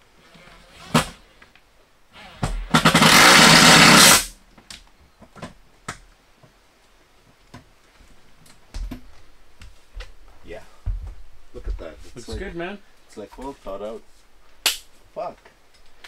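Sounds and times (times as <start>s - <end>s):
power driver running screw: 2.2s - 4.3s.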